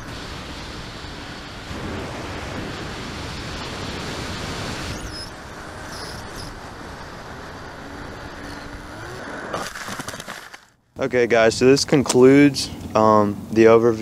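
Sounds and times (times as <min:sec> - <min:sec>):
wind rushing over microphone: 0:00.0 - 0:09.3
electric motor and propeller hum: 0:00.0 - 0:10.7.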